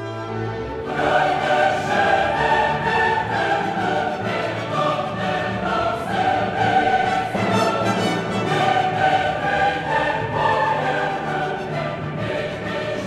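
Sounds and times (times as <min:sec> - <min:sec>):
orchestra: 0:00.0 - 0:13.0
choir singing: 0:00.1 - 0:13.0.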